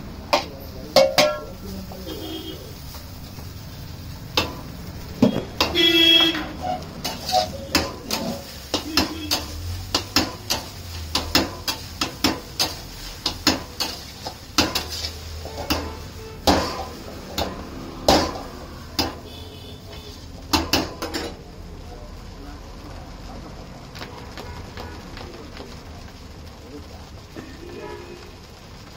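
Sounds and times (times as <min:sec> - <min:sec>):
metal spatula clanking on wok: 0:00.3 - 0:01.6, 0:04.3 - 0:19.3, 0:20.5 - 0:21.4.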